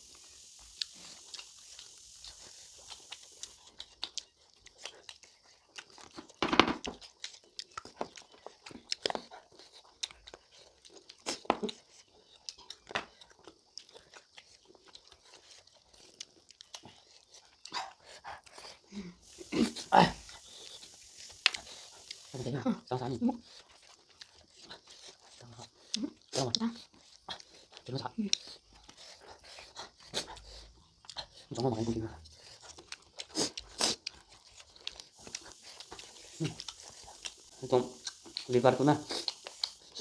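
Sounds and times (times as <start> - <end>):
people chewing food: 0.0 - 40.0
lip smacks: 32.3 - 40.0.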